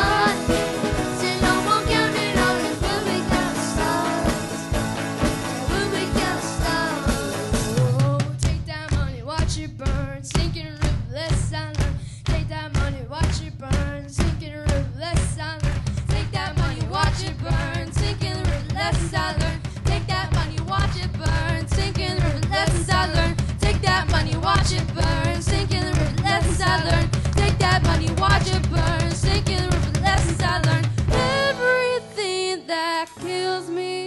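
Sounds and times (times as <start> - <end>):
person singing: 0.0 - 4.7, 5.4 - 10.6, 11.2 - 34.0
live rock band playing: 0.0 - 8.3, 27.0 - 32.3
steady drum hits: 0.0 - 31.9.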